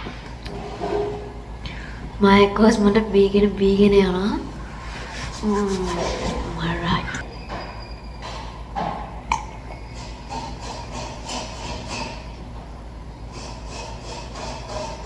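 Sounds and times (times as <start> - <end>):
low steady hum: 0.0 - 7.6.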